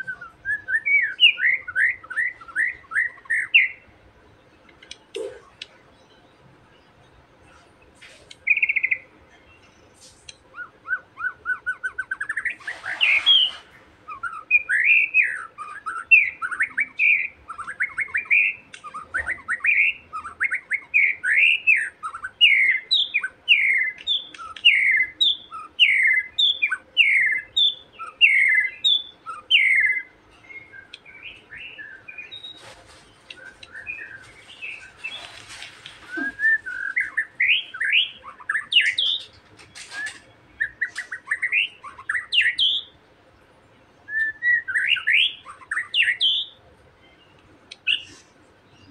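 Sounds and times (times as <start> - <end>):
bird whistling repeated notes: 0.0 - 3.8, 10.5 - 32.6, 36.1 - 42.9, 44.1 - 46.6.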